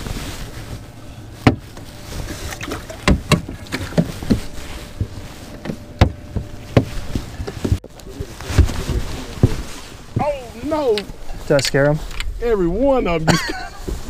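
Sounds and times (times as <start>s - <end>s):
knocks on aluminum boat deck: 3.0s - 4.5s.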